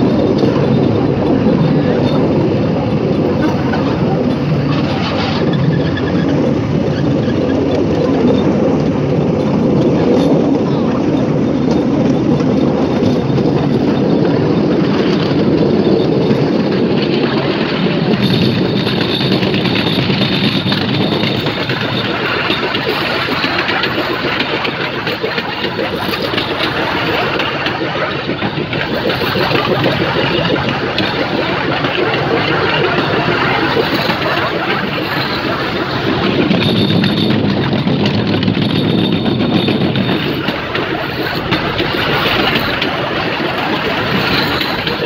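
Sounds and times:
wheels rattling on track: 0.0 - 45.0
small engine running: 18.0 - 45.0.

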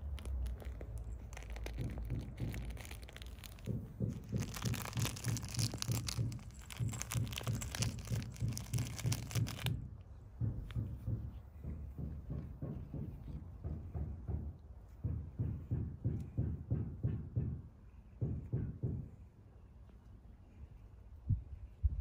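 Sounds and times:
fabric toy crinkling and rustling: 0.0 - 14.0
soft thumps: 0.0 - 19.2.

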